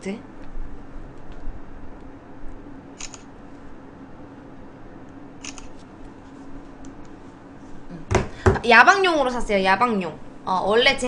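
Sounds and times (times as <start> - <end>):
faint steady hum: 0.0 - 11.0
phone camera shutter sound: 3.0 - 3.3, 5.4 - 5.8.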